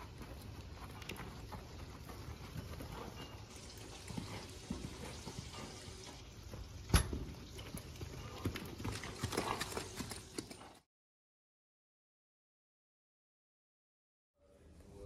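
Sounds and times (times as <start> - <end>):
muffled hoofbeats on dirt: 0.0 - 10.9.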